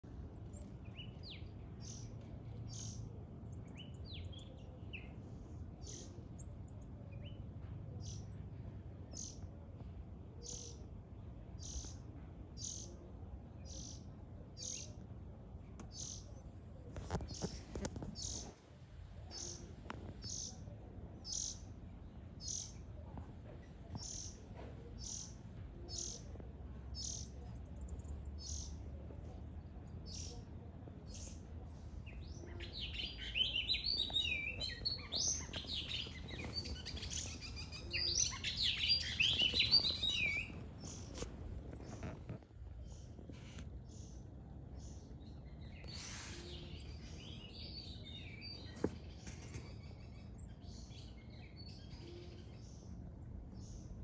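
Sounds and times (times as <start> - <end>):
baby birds cheeping: 15.8 - 18.6, 23.6 - 54.0.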